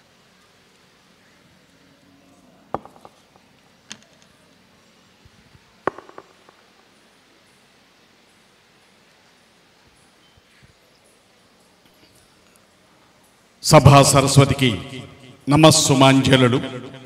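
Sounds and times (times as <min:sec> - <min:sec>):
faint hall hiss: 0:00.0 - 0:17.0
microphone handling knocks: 0:05.9 - 0:06.6.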